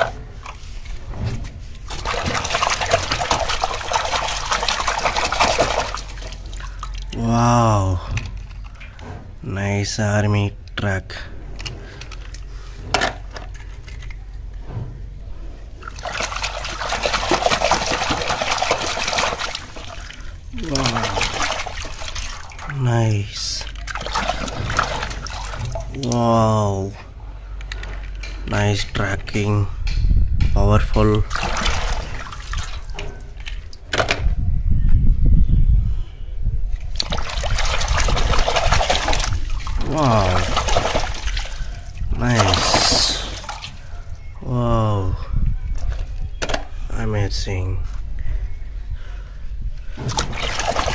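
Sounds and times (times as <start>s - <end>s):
water splashing in a basin: 1.7s - 7.4s, 15.8s - 26.7s, 31.2s - 33.7s, 36.9s - 44.2s, 50.0s - 50.9s
low rumble: 6.3s - 15.9s.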